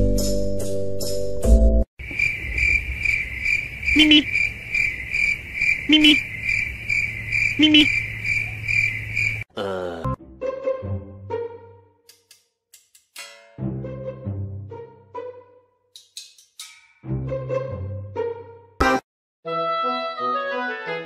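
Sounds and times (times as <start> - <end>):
music: 0.0 - 1.9, 9.8 - 21.0
crickets chirping: 2.0 - 9.5.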